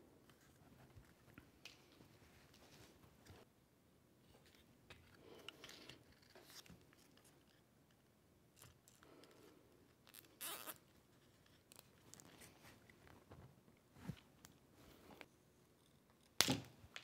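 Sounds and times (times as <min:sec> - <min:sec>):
rustling and light clicks: 0:04.3 - 0:10.0
zip tie pulled tight: 0:10.1 - 0:10.8.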